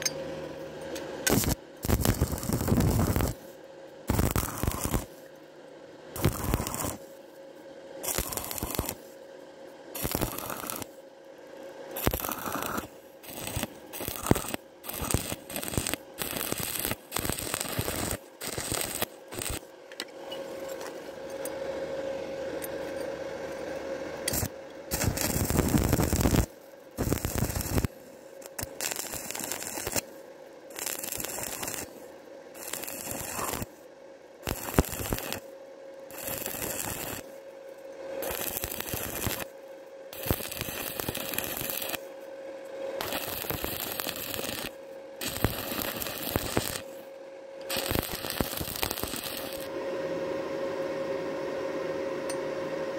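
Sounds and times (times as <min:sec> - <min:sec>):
welding arc crackling: 0:01.3 - 0:05.2, 0:06.2 - 0:07.2, 0:08.0 - 0:09.1, 0:09.9 - 0:11.0, 0:11.9 - 0:19.8, 0:24.3 - 0:33.8, 0:34.4 - 0:35.5, 0:36.1 - 0:37.4, 0:38.2 - 0:42.1, 0:43.0 - 0:49.7.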